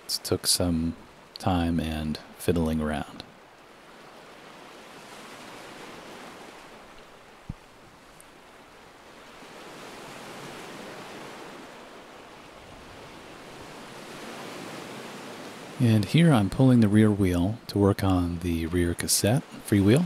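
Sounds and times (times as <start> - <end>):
ocean surf washing: 0.0 - 20.0
short low thump: 7.4 - 7.7.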